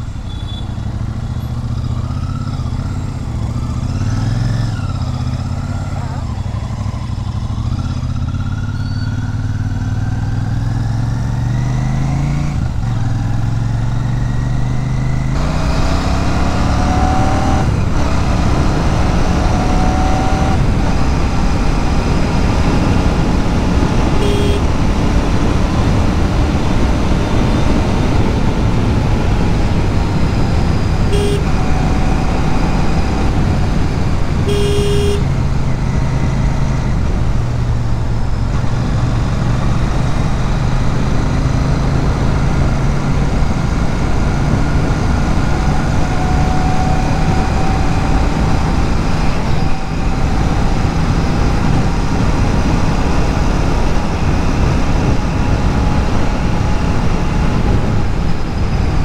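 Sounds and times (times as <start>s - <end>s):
horn beeps: 0.2s - 0.9s, 24.0s - 25.0s, 31.0s - 32.2s, 34.4s - 35.3s
wind noise: 15.4s - 34.6s, 35.2s - 59.0s.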